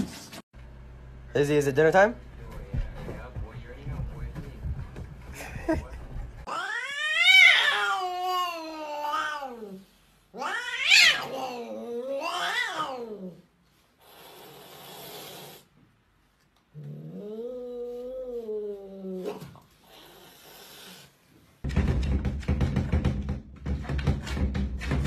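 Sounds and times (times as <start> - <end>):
cat yowling: 6.5 - 9.8, 10.4 - 13.4
cat hissing: 6.5 - 15.7.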